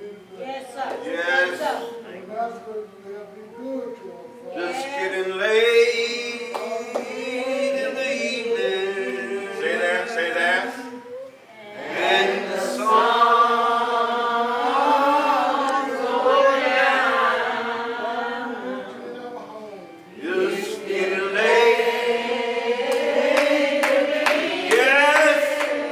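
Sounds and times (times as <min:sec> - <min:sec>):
slow hymn singing: 0:00.0 - 0:25.9.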